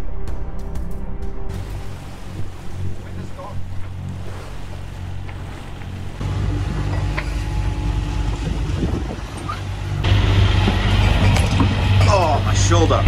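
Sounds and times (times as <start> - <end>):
low engine drone: 0.2 - 13.0
wind and water rushing: 1.5 - 13.0.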